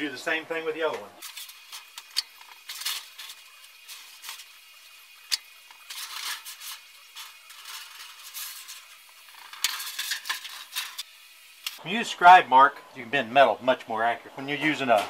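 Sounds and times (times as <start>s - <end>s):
sheet metal rattling and scraping: 1.2s - 4.5s, 5.7s - 11.0s.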